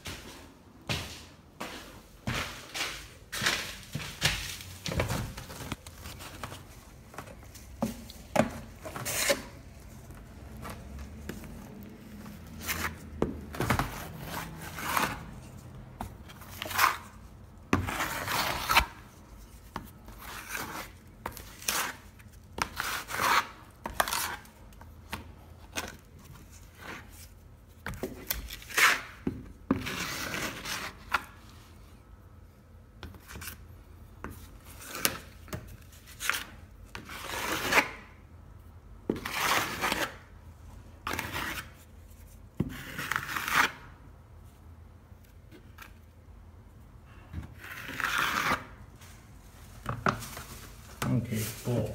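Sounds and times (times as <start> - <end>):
metal knife scraping plaster: 8.1 - 15.6, 16.3 - 24.8, 25.7 - 31.4, 34.5 - 38.2, 39.1 - 40.3, 41.0 - 44.0, 47.4 - 48.8.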